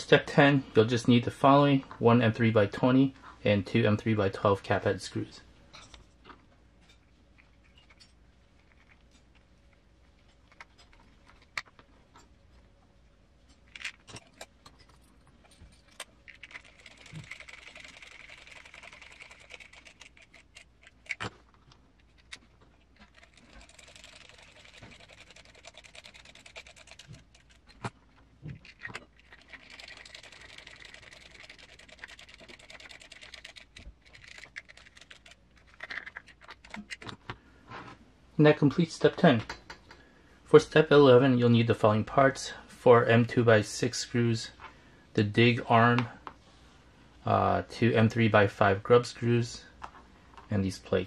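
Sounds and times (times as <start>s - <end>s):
small parts clicking: 15.8s - 27.9s, 28.6s - 37.2s.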